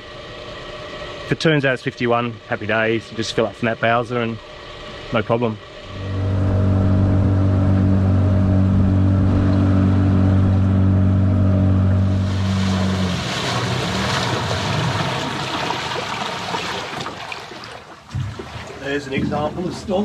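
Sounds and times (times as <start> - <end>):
churning water: 5.2 - 20.0
outboard motor running: 5.2 - 20.0.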